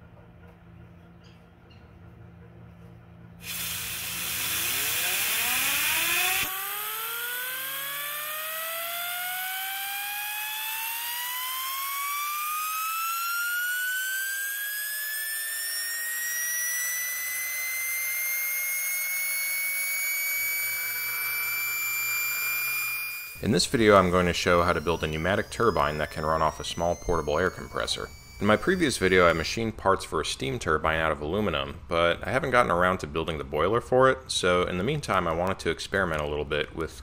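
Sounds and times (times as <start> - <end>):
compressed air hissing: 3.4 - 6.5
turbine whine rising in pitch: 3.4 - 33.4.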